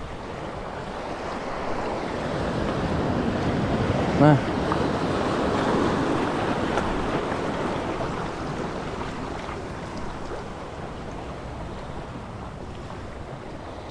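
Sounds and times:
sea water washing over rocks: 0.0 - 13.9.

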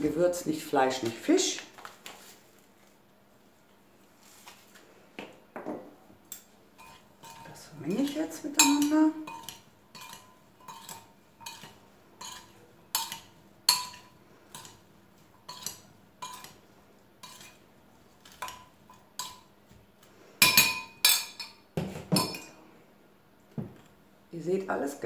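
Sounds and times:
metal spoon clinking glass bowl: 6.3 - 14.8, 15.5 - 16.6, 17.2 - 17.6, 20.4 - 21.6.

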